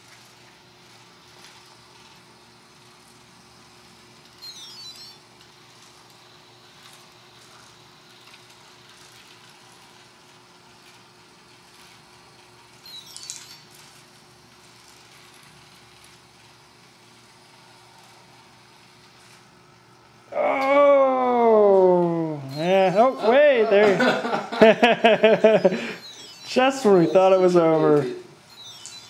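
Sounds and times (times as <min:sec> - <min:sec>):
faint steady hum: 0:00.0 - 0:29.0
high electronic beeps: 0:04.4 - 0:05.3, 0:12.8 - 0:13.8, 0:22.4 - 0:29.0.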